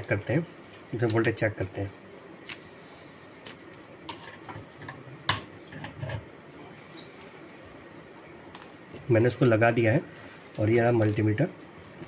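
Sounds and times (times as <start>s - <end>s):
cable handling noise: 10.4s - 11.4s.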